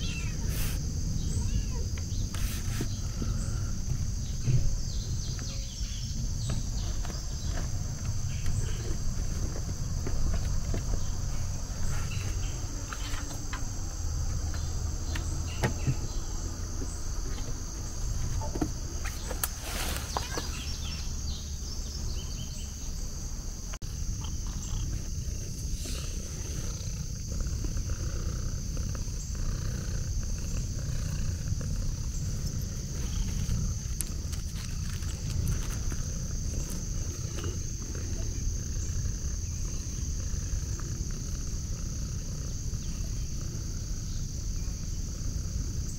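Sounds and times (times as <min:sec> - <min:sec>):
insects droning: 0:00.0 - 0:45.9
rustles and clicks: 0:18.1 - 0:20.8, 0:30.8 - 0:38.2.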